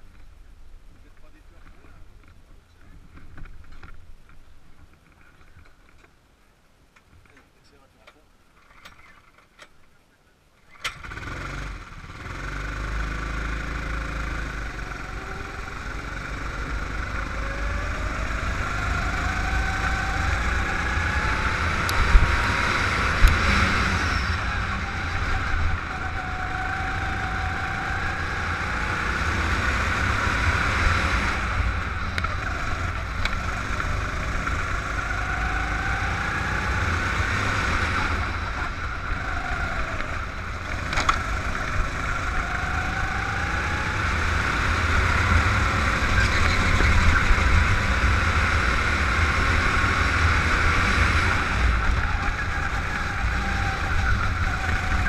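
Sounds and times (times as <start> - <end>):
kart engine revving: 10.7 - 55.0.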